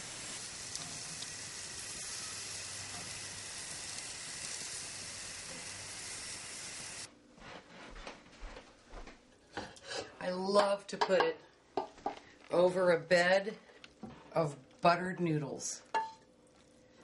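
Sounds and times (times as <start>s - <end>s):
meat sizzling on grill: 0.0s - 7.1s.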